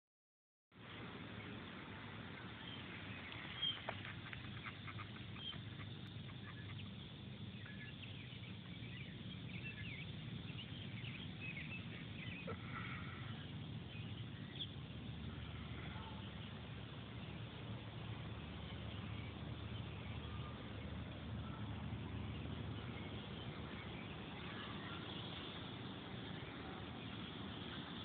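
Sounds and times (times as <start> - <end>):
animal chirps and calls: 3.6 - 8.2.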